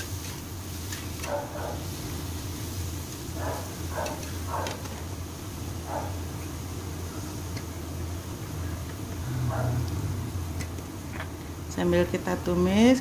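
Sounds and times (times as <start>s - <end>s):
low hum: 7.0s - 12.6s.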